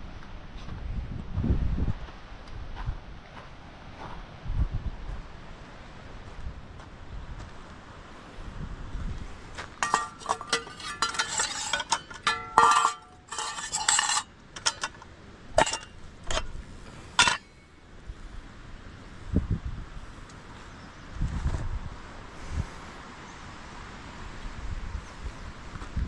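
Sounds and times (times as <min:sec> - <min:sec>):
metal cookware clinking and clanging: 0:09.8 - 0:15.0, 0:15.6 - 0:16.5, 0:17.2 - 0:17.5.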